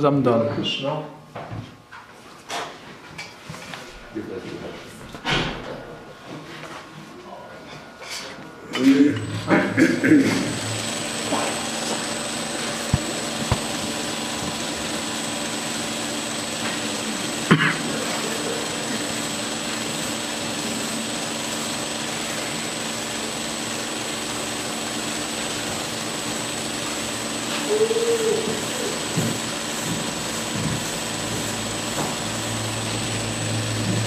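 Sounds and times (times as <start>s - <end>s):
belt sander grinding steel: 10.3s - 34.0s.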